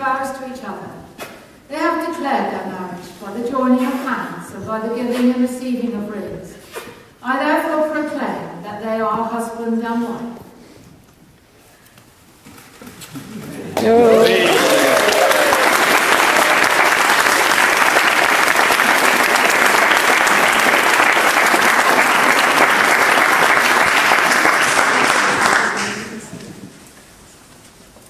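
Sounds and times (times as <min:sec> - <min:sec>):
congregation clapping: 0:13.8 - 0:26.6.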